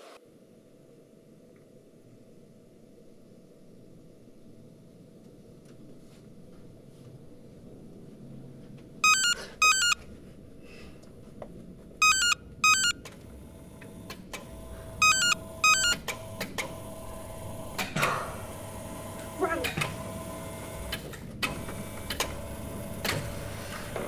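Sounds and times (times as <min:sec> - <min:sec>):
mobile phone ringing: 0:09.0 - 0:10.0, 0:12.0 - 0:13.0, 0:15.0 - 0:16.1.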